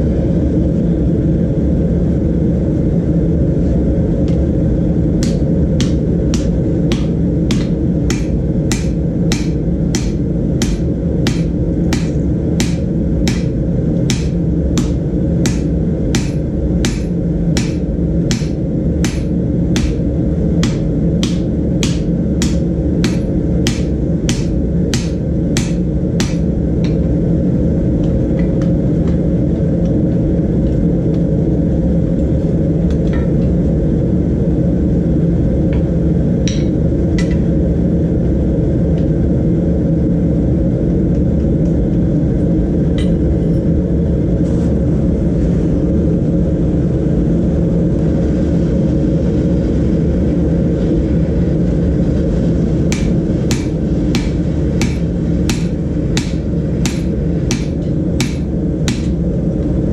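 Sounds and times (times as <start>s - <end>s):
gas forge roaring: 0.0s - 59.9s
hammer striking hot steel on anvil: 5.2s - 27.1s, 36.5s - 37.4s, 52.9s - 59.2s.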